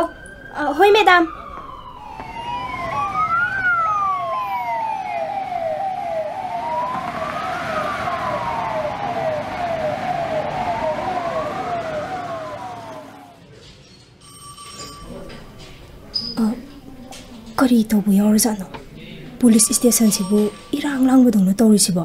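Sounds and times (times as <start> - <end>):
siren wailing: 0.0 - 13.4, 19.4 - 21.1
siren yelping: 0.0 - 13.4, 19.4 - 21.0.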